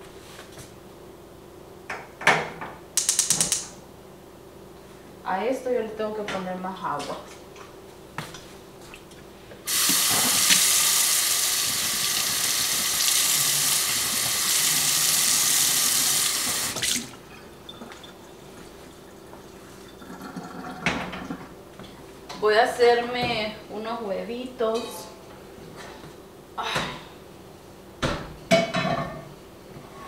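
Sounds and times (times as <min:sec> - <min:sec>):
tap running into a kettle: 0:09.7 - 0:10.8.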